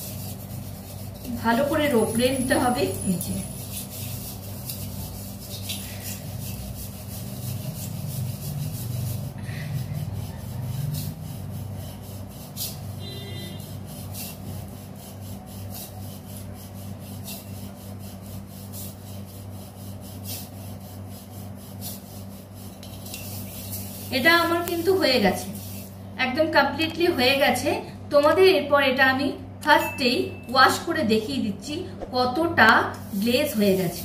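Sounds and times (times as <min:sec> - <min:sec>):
scrubbing metal utensil: 0:00.0 - 0:26.0.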